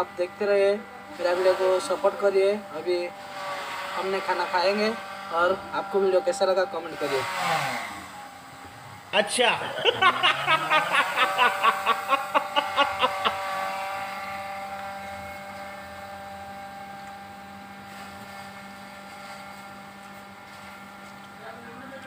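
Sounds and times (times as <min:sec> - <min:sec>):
mechanical hum with held tones: 0:00.0 - 0:22.0
man laughing in bursts: 0:09.2 - 0:13.9.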